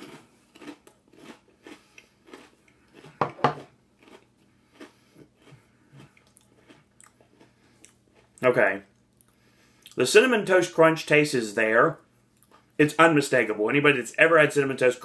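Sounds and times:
cereal being chewed: 0.0 - 10.0.

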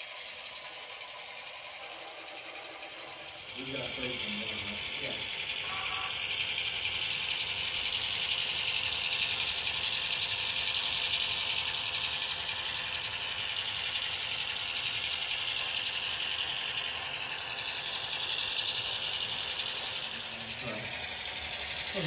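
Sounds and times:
model train motor whirring: 0.0 - 22.0.

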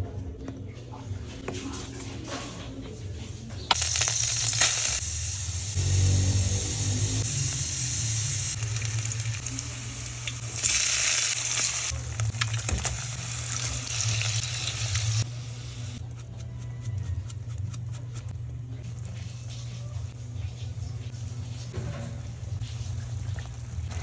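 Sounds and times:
food sizzling in oil: 3.7 - 15.2.

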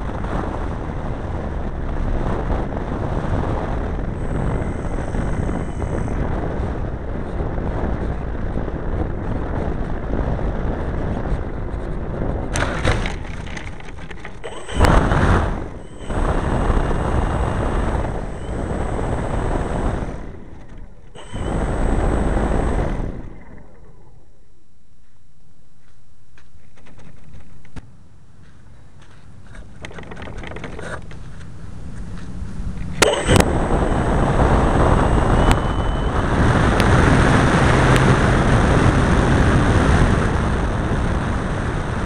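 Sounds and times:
model airplane engine: 0.0 - 24.4, 29.6 - 42.0
rolling over rough dirt: 0.2 - 24.1.

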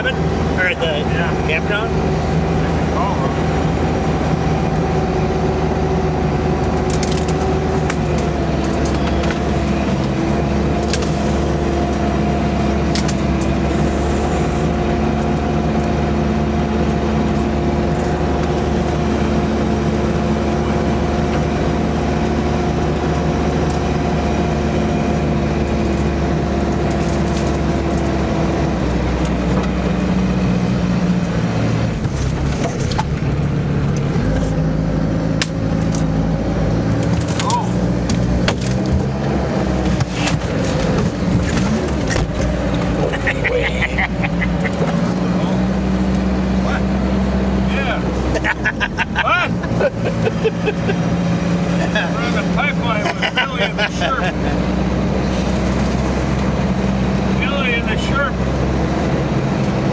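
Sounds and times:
diesel engine droning: 0.0 - 59.9
twigs and branches snapping: 6.7 - 10.2, 12.8 - 13.6, 37.0 - 39.1.

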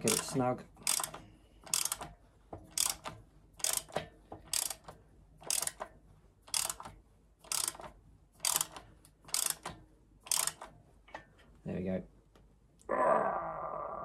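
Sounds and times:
ratchet wrench clicking: 0.0 - 5.9, 6.5 - 10.7.

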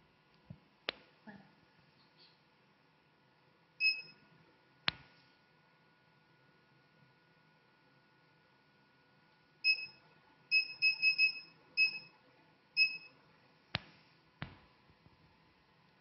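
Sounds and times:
short electronic beeps: 3.8 - 4.2, 9.7 - 12.1.

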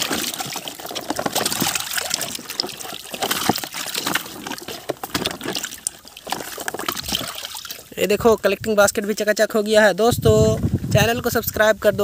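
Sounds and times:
water splashing in plastic basket: 0.0 - 8.0.

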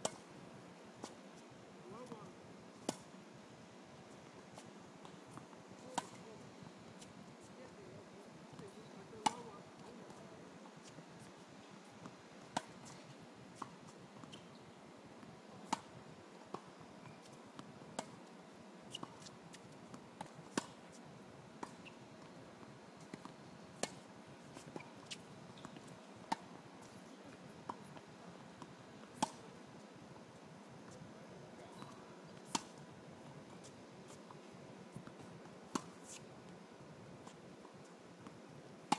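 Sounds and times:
low steady hiss: 0.0 - 38.9
tennis ball bounces: 5.0 - 6.2, 8.5 - 10.2, 15.7 - 15.9, 23.1 - 24.1, 29.1 - 29.5, 31.8 - 32.8, 35.1 - 36.2
tennis ball racket hits: 9.2 - 9.6.

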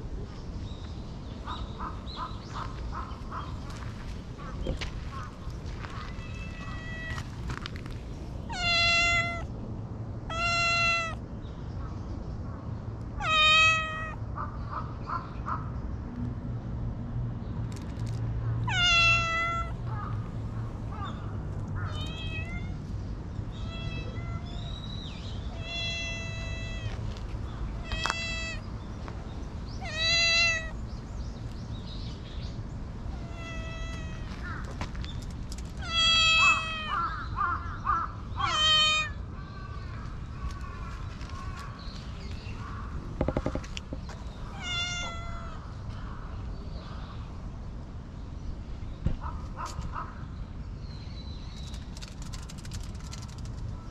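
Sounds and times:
cat meowing: 6.0 - 7.4, 8.5 - 9.5, 10.3 - 11.2, 13.2 - 14.2, 18.7 - 19.8, 21.8 - 22.8, 23.6 - 24.6, 25.5 - 27.0, 27.8 - 28.6, 29.8 - 30.8, 33.1 - 34.7, 35.8 - 37.1, 38.4 - 39.2, 44.5 - 45.6.

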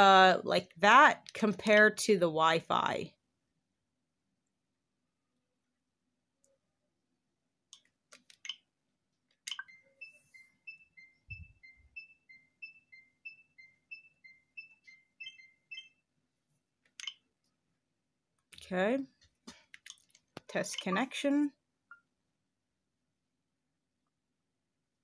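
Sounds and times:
sharp electronic clicks: 9.5 - 16.0, 17.0 - 17.2
two-note electronic beep: 9.6 - 16.0.

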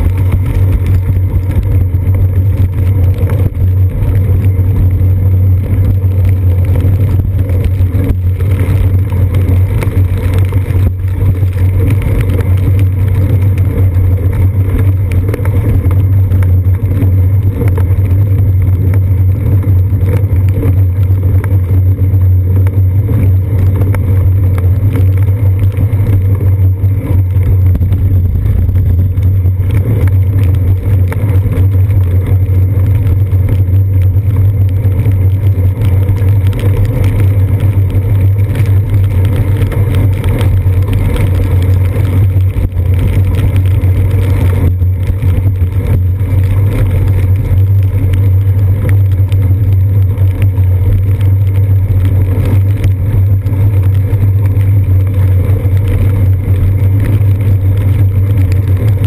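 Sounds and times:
bicycle riding on wet pavement: 0.0 - 59.0
wind noise: 0.0 - 59.0.

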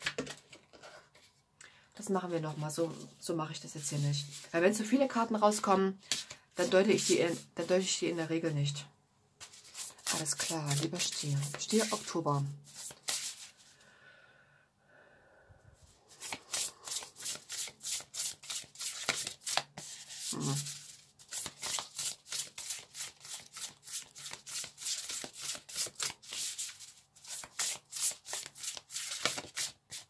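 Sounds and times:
cards being shuffled: 0.0 - 1.3, 6.0 - 7.4, 9.4 - 13.6, 16.1 - 30.0.

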